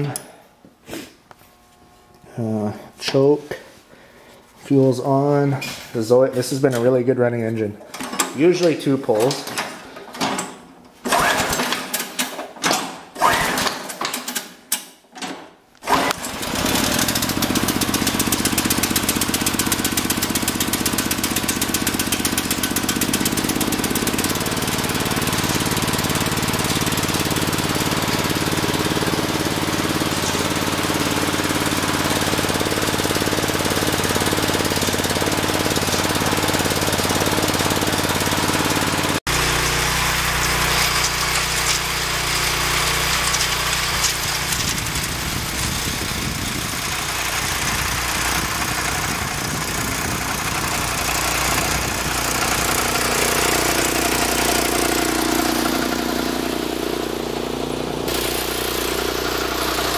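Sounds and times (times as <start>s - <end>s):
engine cranking and running: 11.0s - 12.4s, 13.2s - 14.5s, 15.8s - 59.9s.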